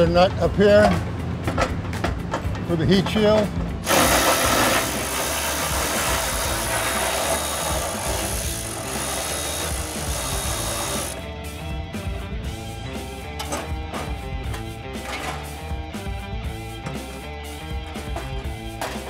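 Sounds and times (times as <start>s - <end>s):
background music: 0.0s - 19.0s
cordless electric ratchet spinning: 3.8s - 11.2s.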